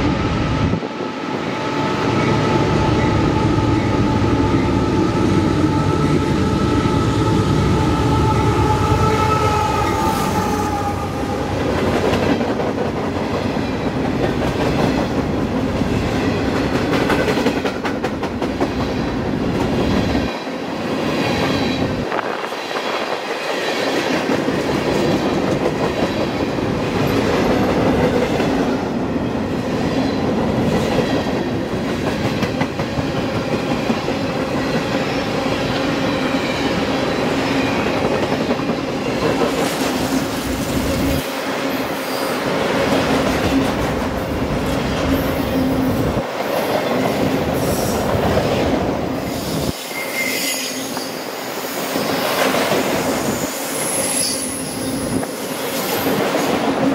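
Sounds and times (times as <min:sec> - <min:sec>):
train wheels rumbling on track: 0:00.0 - 0:56.9
wheel squeal: 0:49.5 - 0:51.2.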